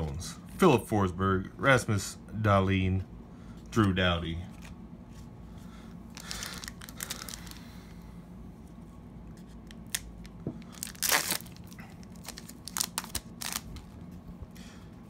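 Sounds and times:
wrapper crinkling: 0:06.1 - 0:07.7, 0:09.7 - 0:14.0
wrapper tearing: 0:06.2 - 0:07.6, 0:09.7 - 0:14.0.

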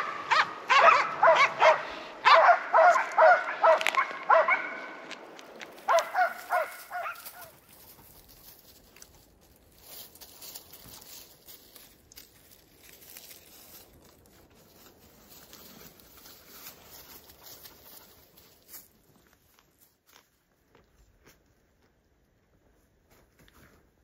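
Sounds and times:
dogs barking: 0:00.0 - 0:05.1, 0:05.8 - 0:07.6
rustling in dry grass: 0:02.8 - 0:21.4
soft steps in dry leaves: 0:02.8 - 0:21.5.

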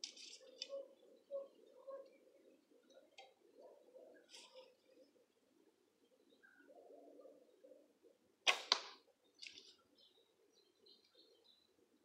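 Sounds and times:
faint bird chirps: 0:00.2 - 0:08.2, 0:09.2 - 0:12.0
arrow striking target: 0:08.5 - 0:09.0
bowstring release crack: 0:08.5 - 0:09.6.

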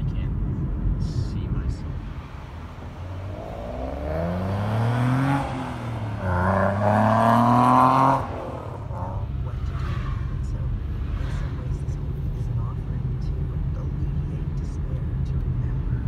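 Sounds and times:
car engine accelerating: 0:00.0 - 0:16.0.

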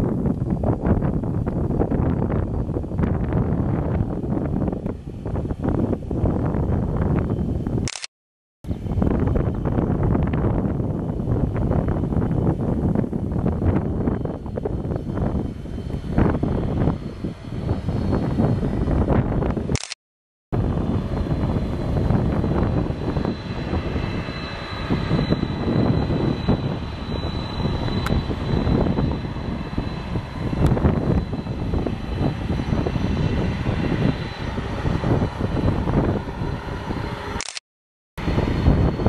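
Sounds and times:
jet engines rumbling: 0:00.0 - 0:07.9, 0:08.7 - 0:19.8, 0:20.6 - 0:37.4, 0:38.2 - 0:39.0
high jet engine whine: 0:00.0 - 0:08.1, 0:08.7 - 0:20.0, 0:20.6 - 0:37.6, 0:38.2 - 0:39.0.

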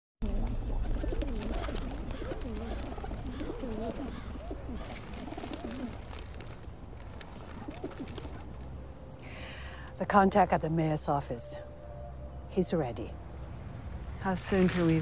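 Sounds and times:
pigeons cooing: 0:00.2 - 0:08.8
low background rumble: 0:00.2 - 0:15.0.

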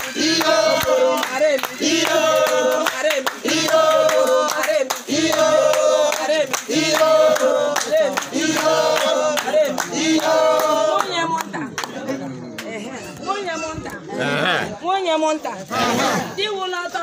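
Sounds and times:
women singing together: 0:00.0 - 0:11.7
hand claps: 0:00.0 - 0:12.0.

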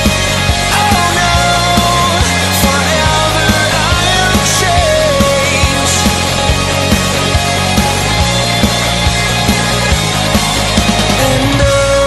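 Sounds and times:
instrumental worship music with drums: 0:00.0 - 0:08.1.

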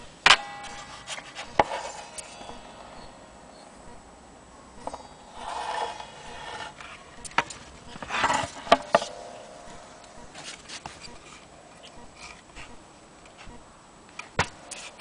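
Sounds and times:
short ringing tone: 0:00.0 - 0:07.3, 0:08.6 - 0:11.3.

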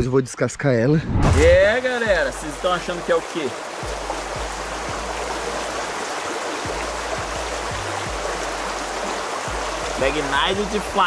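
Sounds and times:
stream rushing over stones: 0:01.2 - 0:11.0.

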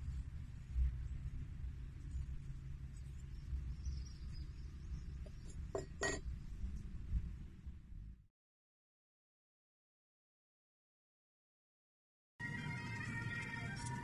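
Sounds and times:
low microphone rumble: 0:00.0 - 0:08.2.

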